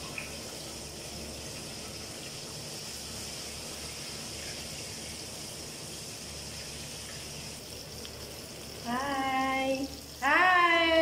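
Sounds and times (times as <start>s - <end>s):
mixture sizzling in a pan: 0.0s - 11.0s.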